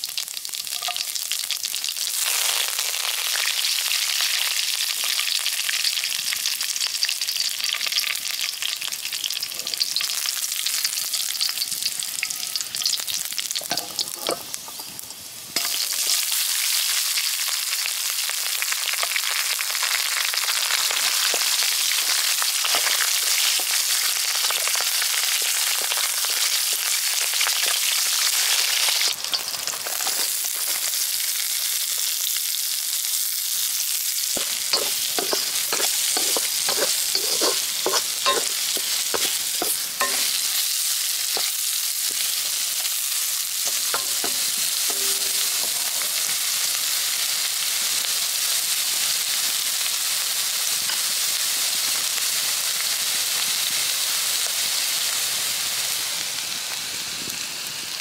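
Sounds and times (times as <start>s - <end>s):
food sizzling in hot oil: 0.0s - 58.0s
metal spatula scraping wok: 13.6s - 15.0s, 29.4s - 30.4s, 34.4s - 46.5s.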